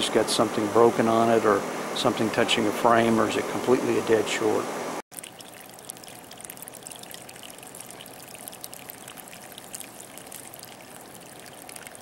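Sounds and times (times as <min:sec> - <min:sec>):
hose water splashing on mud: 0:05.1 - 0:12.0.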